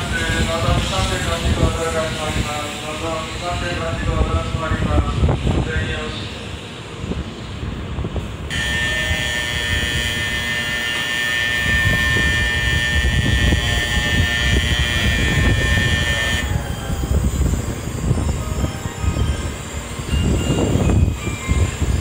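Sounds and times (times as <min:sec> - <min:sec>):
low station and train rumble: 0:00.0 - 0:22.0
electronic departure bell ringing: 0:08.5 - 0:17.1, 0:18.4 - 0:22.0.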